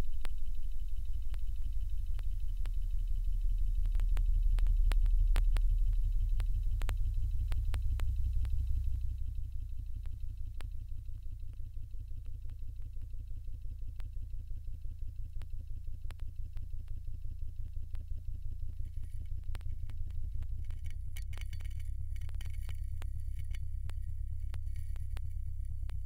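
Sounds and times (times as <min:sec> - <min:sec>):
pressure pump low pulsing rumble: 0:00.0 - 0:26.0
sharp ticks: 0:00.0 - 0:26.0.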